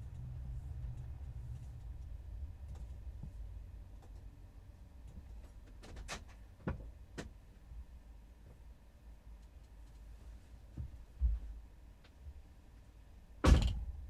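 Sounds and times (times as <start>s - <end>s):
low rumble inside a van: 0.0s - 14.0s
sharp clicks and knocks: 5.0s - 7.4s.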